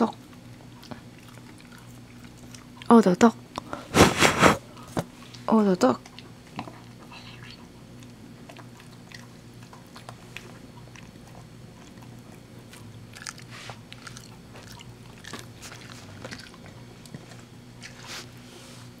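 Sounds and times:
dog crunching a treat: 0.3 - 3.0, 6.0 - 18.1.

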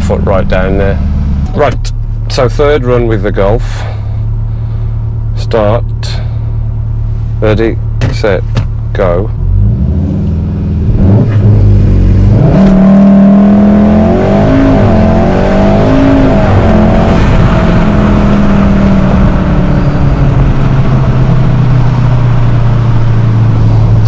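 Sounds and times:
car engine accelerating hard: 7.6 - 24.0.

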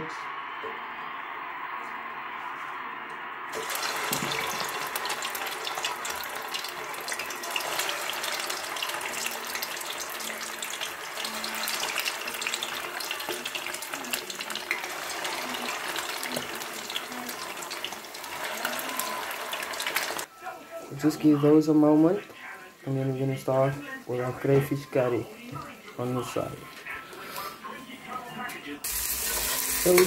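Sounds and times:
food frying in oil: 3.5 - 20.3, 28.8 - 30.0.

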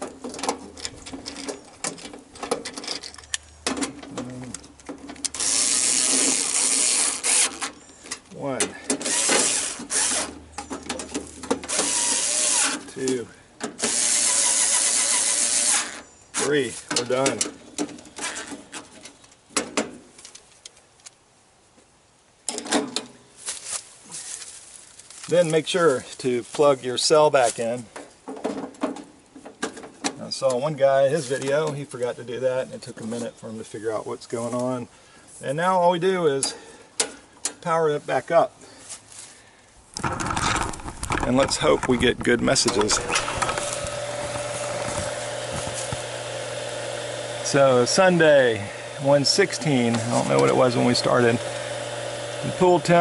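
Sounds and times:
loud steady rasp: 9.0 - 10.3.

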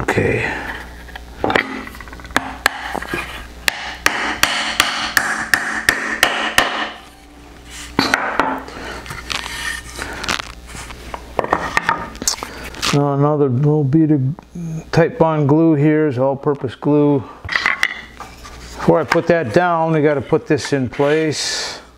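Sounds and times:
hammer striking nails into wood: 2.4 - 2.9, 3.6 - 7.0.

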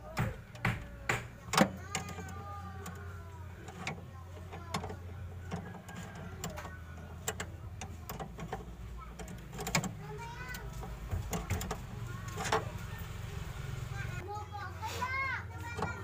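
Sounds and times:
hand tools clicking on metal: 0.0 - 12.8.

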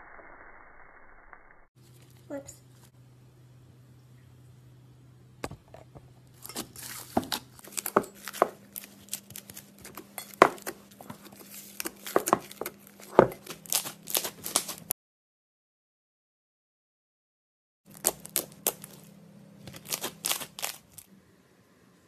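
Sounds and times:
slime crackling and popping: 10.7 - 14.9, 17.9 - 19.0, 19.7 - 21.1.

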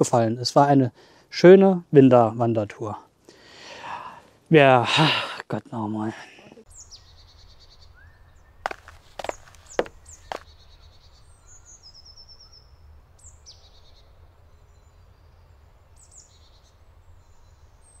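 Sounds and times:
songbirds trilling: 6.7 - 18.0.

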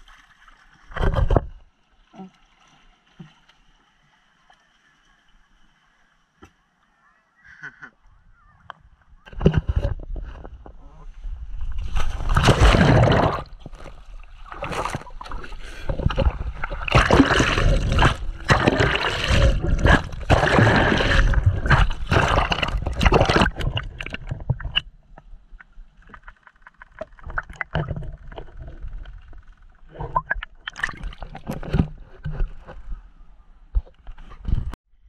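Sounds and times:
water splashing and rushing: 0.0 - 5.2, 11.2 - 32.9.

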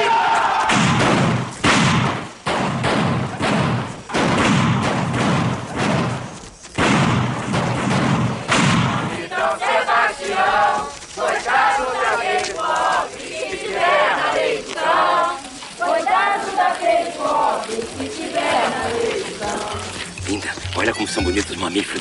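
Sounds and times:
crowd chanting: 0.0 - 1.0, 8.4 - 21.7
crowd shouting and cheering: 0.0 - 1.0.

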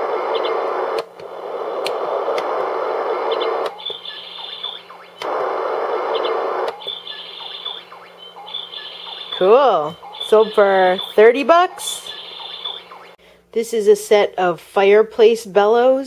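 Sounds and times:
white noise hiss: 0.0 - 7.1
recorded birdsong chirping: 3.7 - 5.2, 6.2 - 13.2.

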